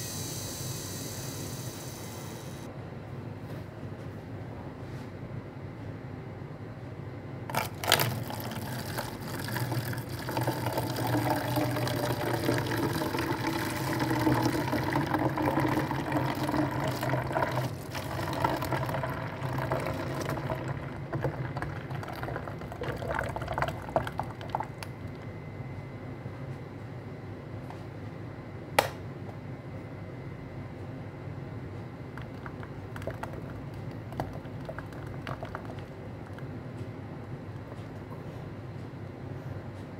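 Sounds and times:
juice streaming into container: 7.5s - 25.2s, 32.2s - 36.5s
juicer motor humming: 7.5s - 25.3s.

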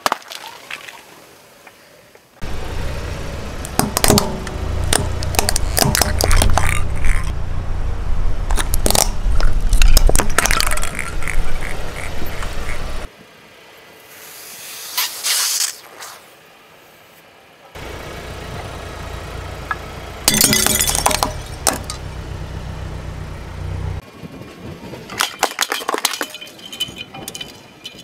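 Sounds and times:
car engine and tyre rumble: 1.3s - 28.0s
plastic bulbs cracking and popping: 4.9s - 7.3s, 8.5s - 11.1s
brief hiss: 14.1s - 16.3s.

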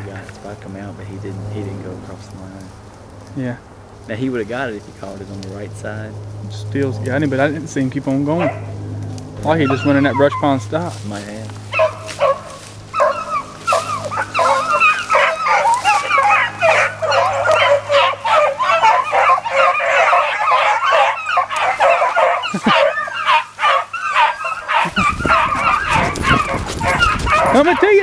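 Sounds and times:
pack of dogs baying: 5.6s - 28.0s
low microphone rumble: 24.7s - 28.0s.

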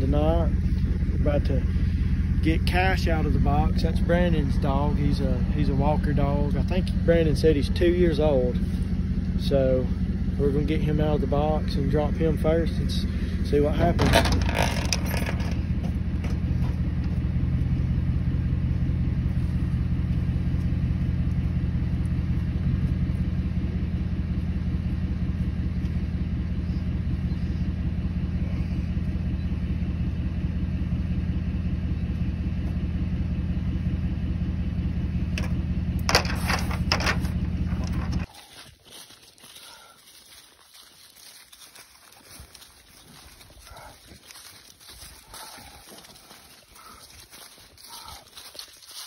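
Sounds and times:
truck engine idling: 0.0s - 49.0s
sharp clanks: 13.8s - 16.4s, 35.3s - 38.3s.

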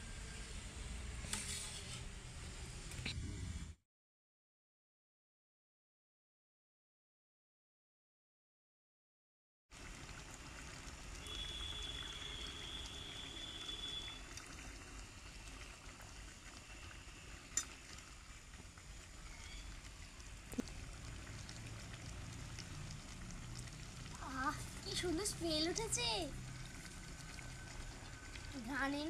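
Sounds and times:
food simmering and bubbling in a pan: 0.0s - 3.3s, 9.7s - 29.0s.

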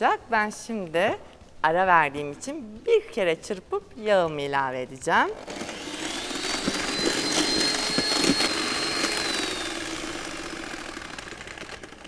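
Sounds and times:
electric hand mixer motor whine: 5.4s - 12.0s.

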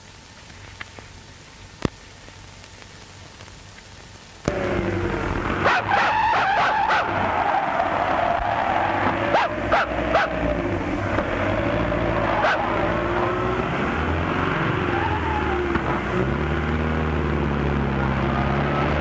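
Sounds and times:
deep engine drone: 4.4s - 5.7s
car engine running: 4.4s - 19.0s
dog barking: 9.3s - 10.4s, 12.4s - 12.7s.

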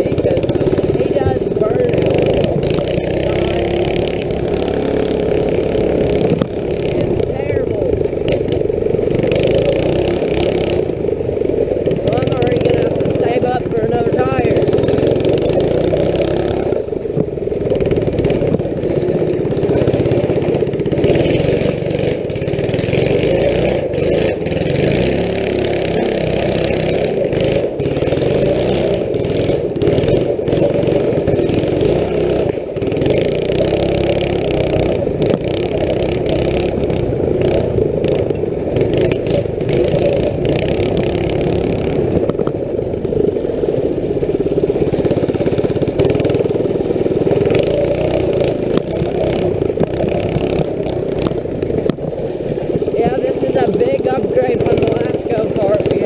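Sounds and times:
small engine running: 0.0s - 56.0s.

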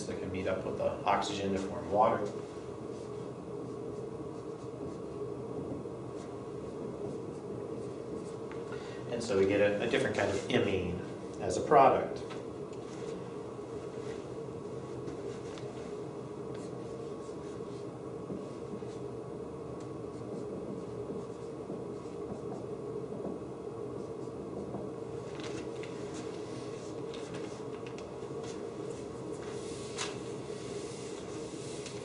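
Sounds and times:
low room hum: 0.0s - 32.0s
marker scratching on whiteboard: 1.5s - 8.6s, 16.5s - 19.1s, 20.1s - 24.9s.

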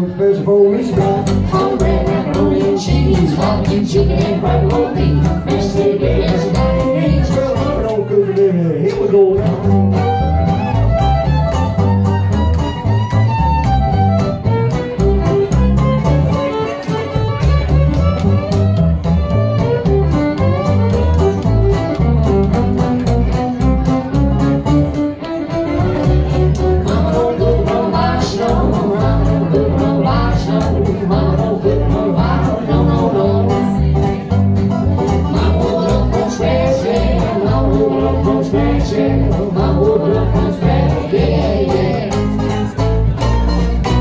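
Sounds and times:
bowed fiddle: 0.0s - 7.9s, 9.6s - 44.0s
picked banjo: 0.0s - 44.0s
strummed acoustic guitar: 0.0s - 44.0s
upright bass: 0.0s - 44.0s.

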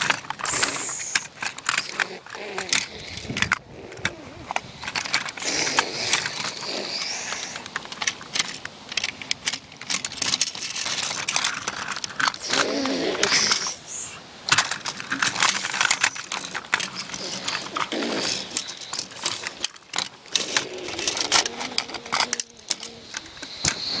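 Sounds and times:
toy trains clattering on wood: 0.0s - 24.0s.

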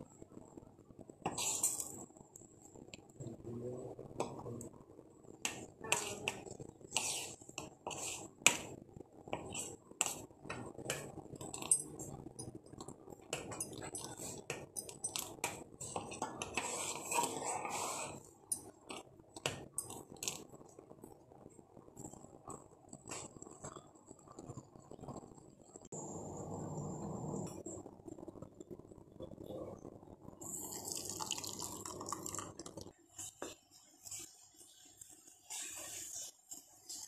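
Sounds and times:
tea being poured: 30.4s - 32.9s.

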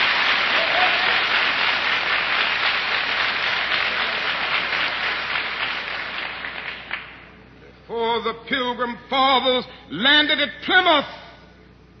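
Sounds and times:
congregation applauding: 0.0s - 7.3s.

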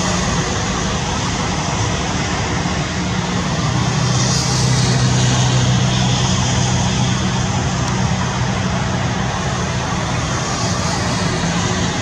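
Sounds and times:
low engine drone: 0.0s - 12.0s
rushing background noise: 0.0s - 12.0s.

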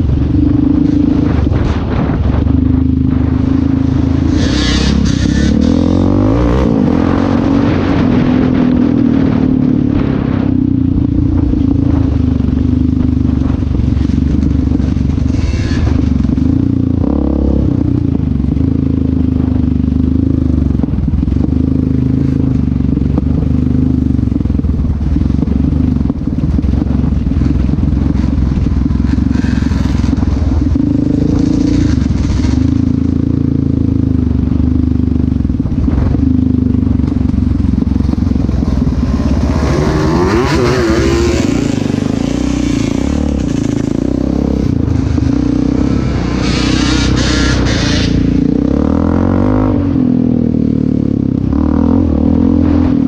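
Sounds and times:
quad bike engine revving: 0.0s - 10.8s, 26.7s - 53.0s
rush of noise: 0.0s - 18.6s, 24.6s - 53.0s.

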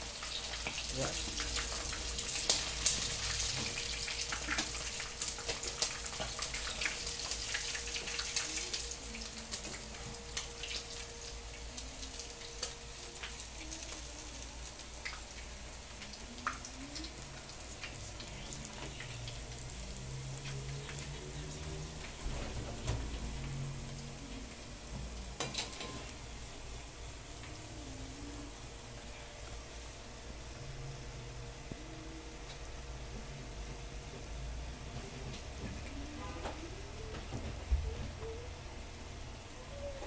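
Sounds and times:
oil crackling and sizzling: 0.0s - 31.8s.

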